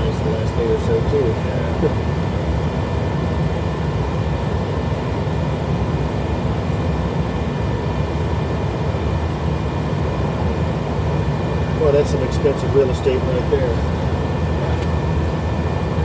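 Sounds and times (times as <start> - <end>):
faint steady whine: 0.0 - 16.0
jet engine and airflow rush: 0.0 - 16.0.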